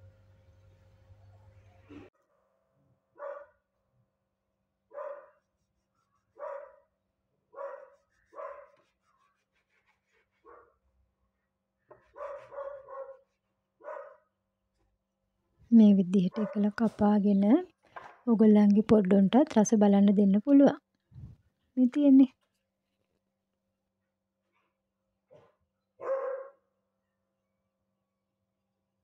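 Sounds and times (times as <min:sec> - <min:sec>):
dog barking: 0:03.2 - 0:03.6, 0:04.9 - 0:05.4, 0:06.4 - 0:06.9, 0:07.5 - 0:08.8, 0:10.4 - 0:10.8, 0:12.0 - 0:14.3, 0:16.3 - 0:16.7, 0:26.0 - 0:26.6.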